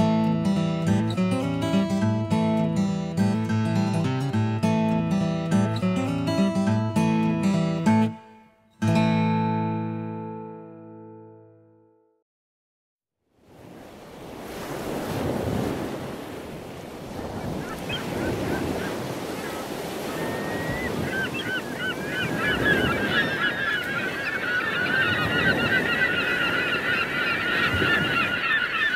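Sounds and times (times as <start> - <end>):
ocean surf washing: 13.4 - 28.9
birds giving short cries: 17.3 - 28.9.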